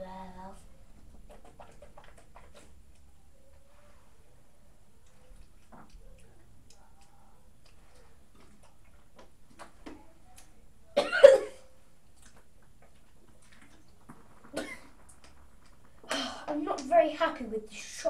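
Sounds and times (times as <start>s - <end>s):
child coughing: 11.0s - 11.7s, 14.6s - 14.9s.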